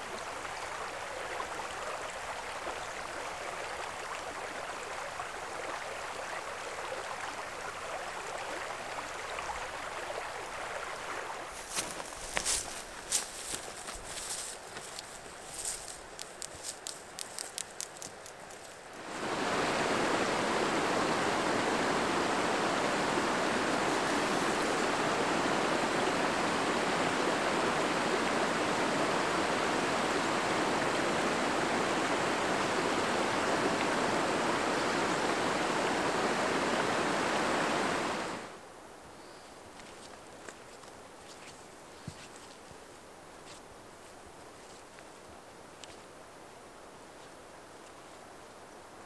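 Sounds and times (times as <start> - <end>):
creek water rushing: 0.0 - 39.1
footsteps in dry grass: 11.5 - 19.0, 39.8 - 45.2.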